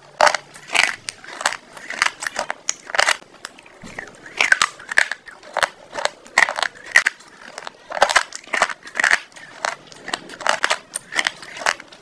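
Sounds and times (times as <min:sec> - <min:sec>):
chewing crunchy food: 0:00.0 - 0:12.0.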